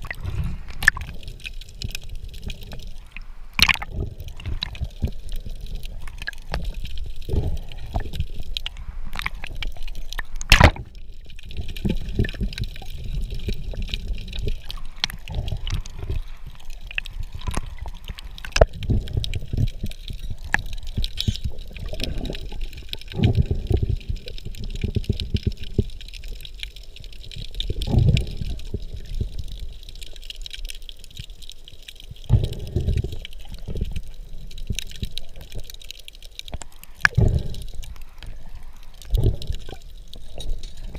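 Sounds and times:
muffled underwater rumble: 0:00.0 - 0:30.2, 0:32.1 - 0:40.9
small clicks: 0:07.9 - 0:23.1.

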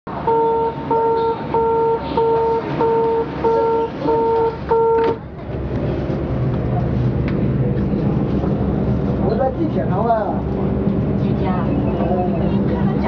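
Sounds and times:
electronic door warning beeps: 0:00.3 - 0:05.2.

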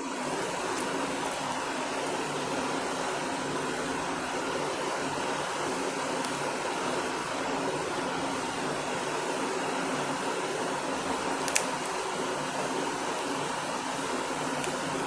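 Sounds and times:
room noise hiss: 0:00.0 - 0:15.0
marker pen click: 0:11.3 - 0:12.0.

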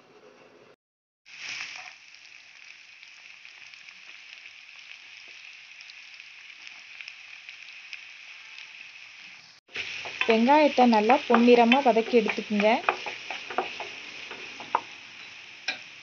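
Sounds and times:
onions sizzling in hot oil: 0:01.3 - 0:16.0.

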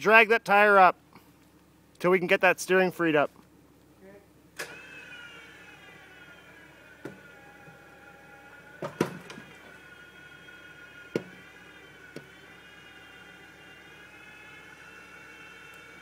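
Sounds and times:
electric winch motor whining: 0:04.6 - 0:16.0.

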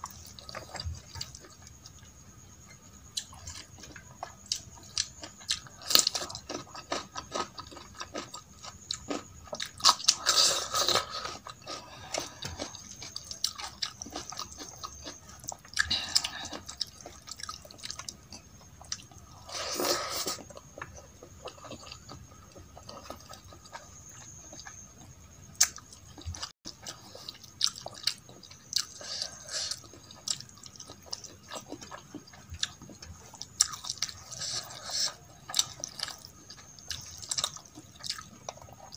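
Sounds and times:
wet chewing: 0:25.5 - 0:38.9.

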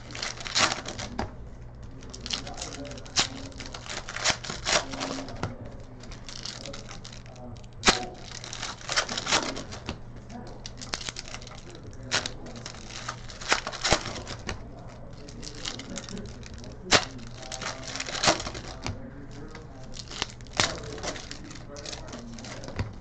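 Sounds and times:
cards clicking and tapping: 0:00.0 - 0:23.0
sharp card snaps: 0:06.4 - 0:10.0.

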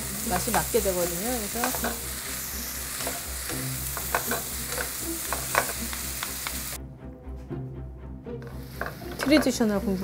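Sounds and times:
vegetables sizzling in a pan: 0:00.0 - 0:06.8, 0:08.5 - 0:10.0
wooden spatulas knocking on pan: 0:01.6 - 0:02.0, 0:04.0 - 0:05.8, 0:08.8 - 0:09.6.

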